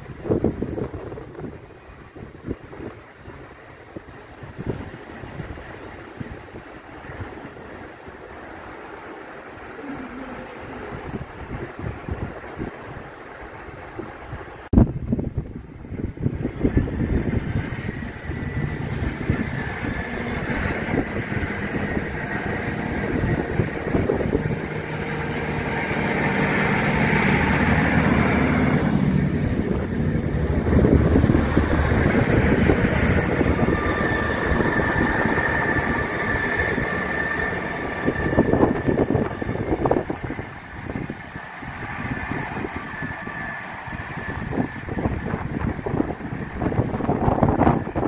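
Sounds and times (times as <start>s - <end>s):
diesel train passing: 0.0s - 48.0s.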